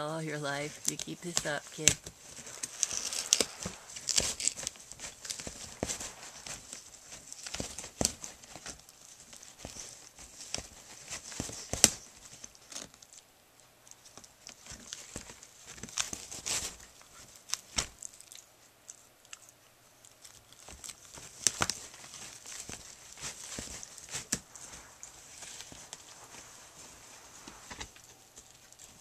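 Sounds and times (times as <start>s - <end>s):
cardboard crackling and ripping: 1.8s - 13.0s, 20.6s - 29.0s.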